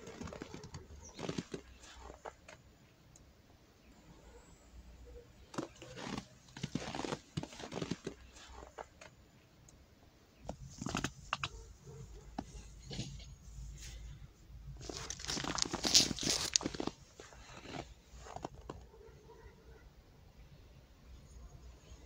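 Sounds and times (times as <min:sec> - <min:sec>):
footsteps crunching in snow: 0:05.6 - 0:08.8, 0:14.8 - 0:18.7.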